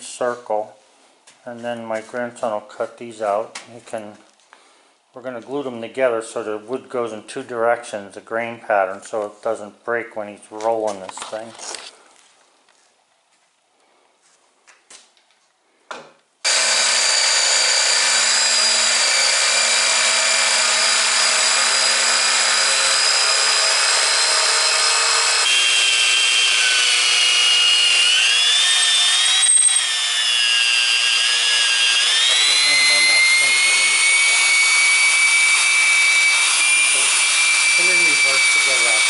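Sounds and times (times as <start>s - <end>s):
electric drill boring into wood: 16.4s - 39.0s
jigsaw cutting wood: 16.4s - 39.0s.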